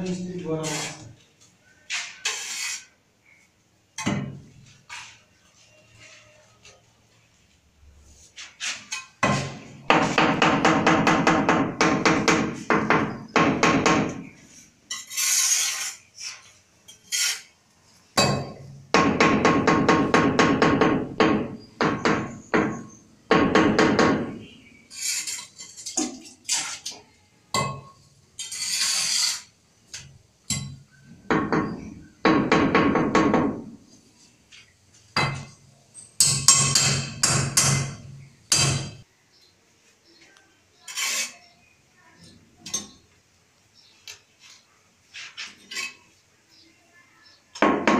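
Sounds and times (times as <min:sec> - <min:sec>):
scraping: 0:00.0 - 0:03.4, 0:14.4 - 0:17.6, 0:28.4 - 0:29.6, 0:40.8 - 0:41.7, 0:44.0 - 0:46.2.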